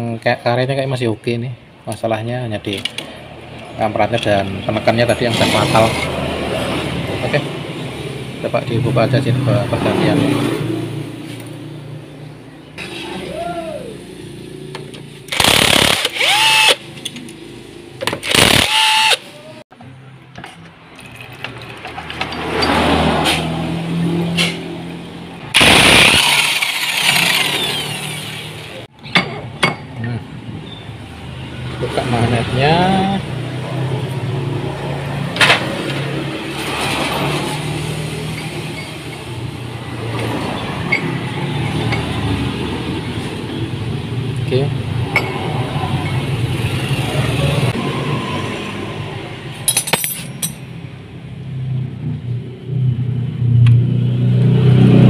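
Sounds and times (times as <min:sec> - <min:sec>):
metal parts clinking: 0:20.9 - 0:22.8, 0:49.6 - 0:50.6.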